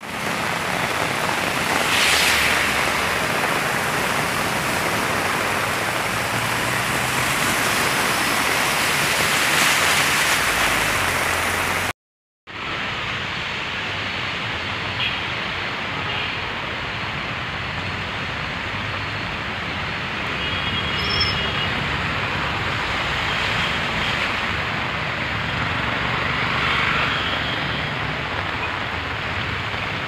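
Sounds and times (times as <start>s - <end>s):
car tyres splashing through water: 0.0s - 11.9s, 21.8s - 30.0s
heavy rain: 0.0s - 11.9s, 12.5s - 30.0s.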